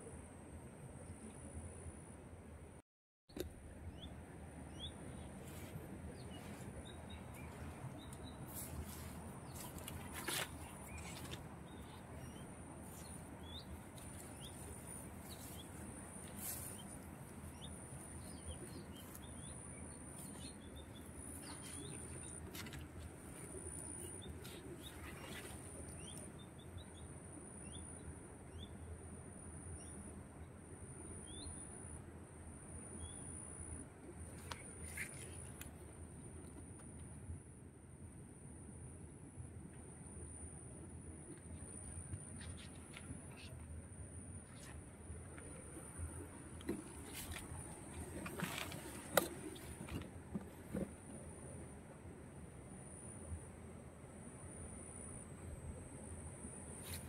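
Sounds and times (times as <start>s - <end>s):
small birds chirping: 3.9s - 27.1s.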